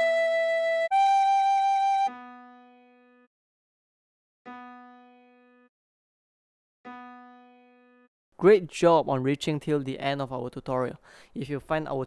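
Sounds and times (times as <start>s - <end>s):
tin whistle note with vibrato: 0.0s - 2.5s.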